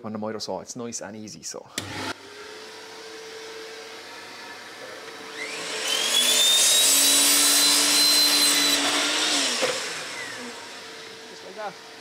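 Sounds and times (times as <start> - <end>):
mitre saw cutting pipe: 4.8 - 12.0.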